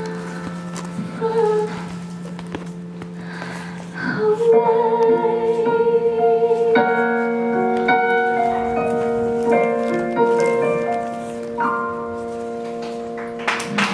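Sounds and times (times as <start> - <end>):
digital piano chords: 0.0 - 13.9.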